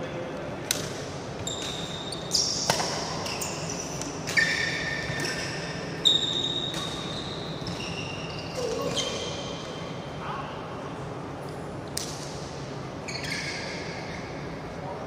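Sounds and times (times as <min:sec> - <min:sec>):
rackets striking shuttlecock: 0:00.6 - 0:07.9
shoes squeaking on court: 0:01.4 - 0:09.9, 0:13.0 - 0:14.4.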